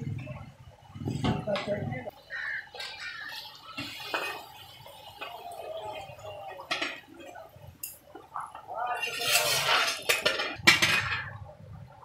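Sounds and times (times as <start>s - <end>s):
water hissing and splashing in pot: 2.1s - 11.2s.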